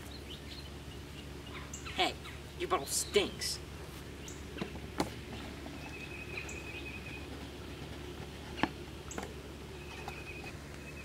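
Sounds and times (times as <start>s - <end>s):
bird chirps: 0.0s - 3.5s, 5.3s - 7.4s, 9.1s - 11.0s
low steady hum: 0.0s - 11.0s.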